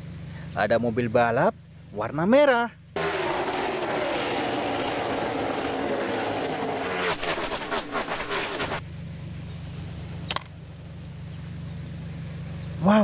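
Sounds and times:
race cars rushing past: 3.0s - 8.8s.

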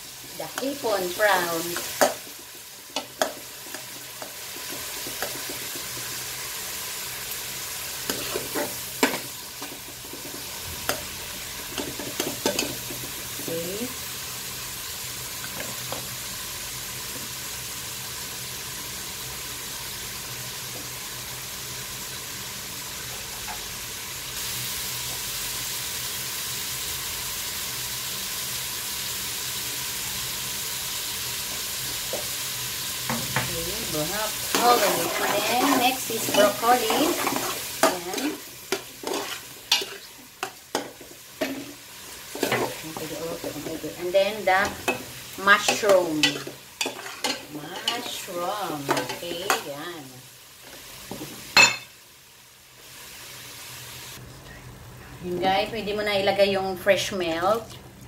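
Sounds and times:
prawns sizzling in a pot: 0.0s - 58.0s
metal spoon scraping a pot: 34.5s - 40.1s.

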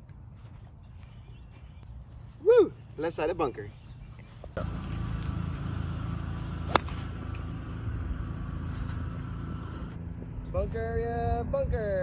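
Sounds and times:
golf ball struck crack: 6.7s - 7.2s
wind rumble on microphone: 9.9s - 12.0s.

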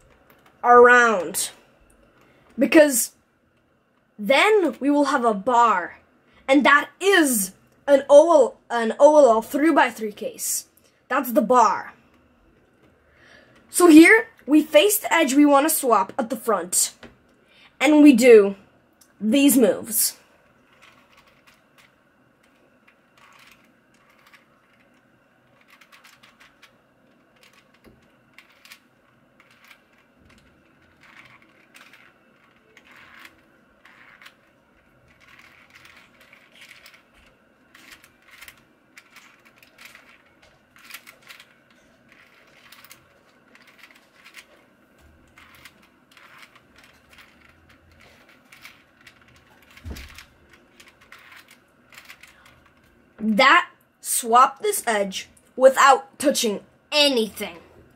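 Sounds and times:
plastic puzzle cube clicking: 23.2s - 25.0s, 27.4s - 28.8s.

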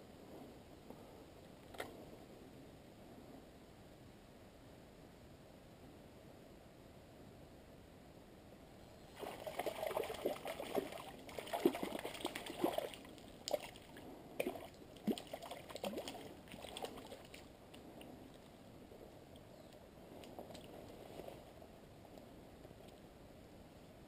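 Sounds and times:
fish splashing in stream: 9.2s - 13.8s.

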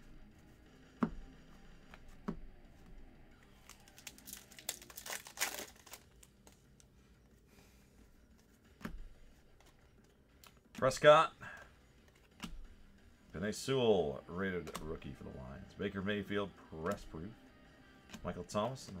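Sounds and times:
wrapper crinkling and tearing: 3.6s - 6.6s.

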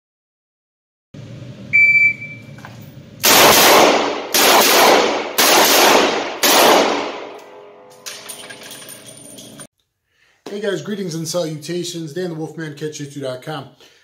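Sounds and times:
handgun shots echoing: 3.2s - 8.4s.

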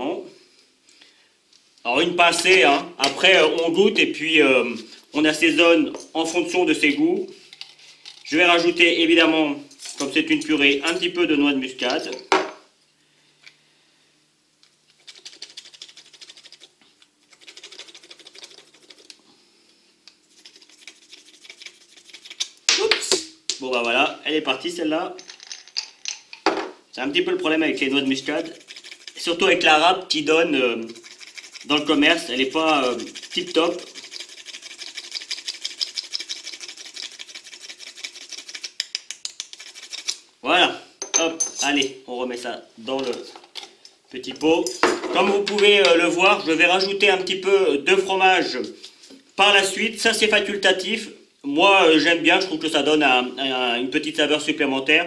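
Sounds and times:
nutmeg scraping on grater: 20.3s - 22.5s, 27.8s - 29.4s, 30.7s - 40.2s.

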